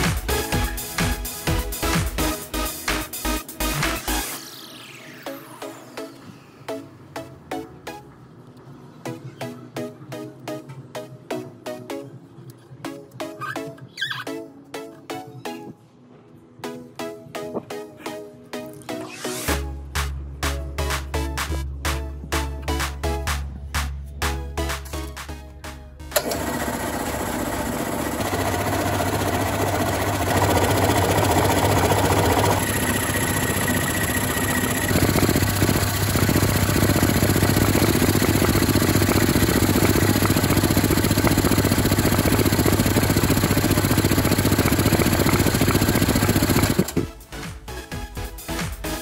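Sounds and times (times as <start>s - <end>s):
air compressor running: 26.1s - 47.2s.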